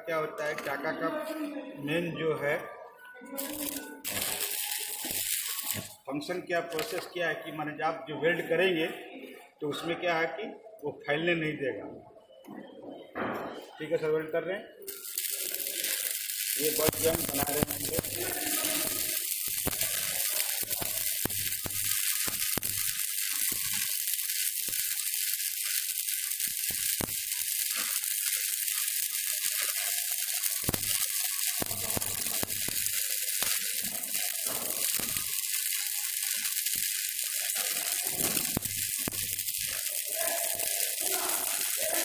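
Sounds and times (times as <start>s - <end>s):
welding arc crackling hiss: 3.4s - 8.9s, 14.8s - 42.0s.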